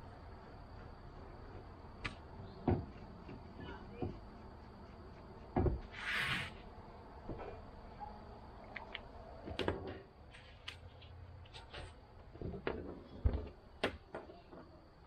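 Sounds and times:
dull thump: 0:05.5 - 0:05.9.

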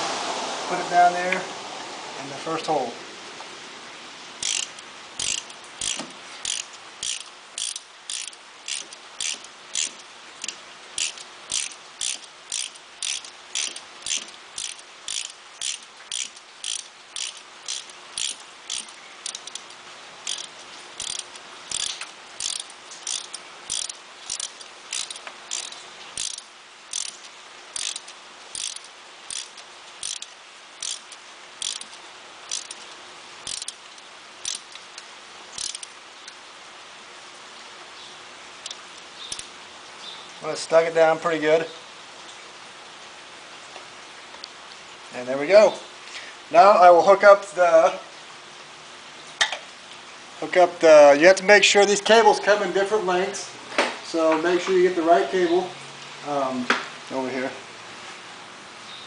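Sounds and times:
socket ratchet clicking: 0:04.4 - 0:34.8, 0:35.6 - 0:36.0.

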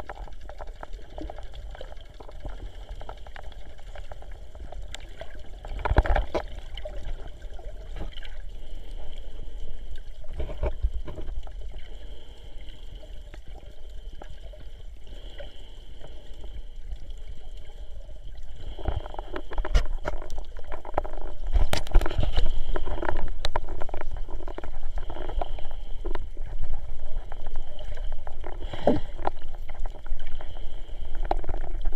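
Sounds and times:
muffled underwater sloshing: 0:00.0 - 0:31.9
small underwater knocks: 0:05.7 - 0:06.6, 0:18.8 - 0:26.3.

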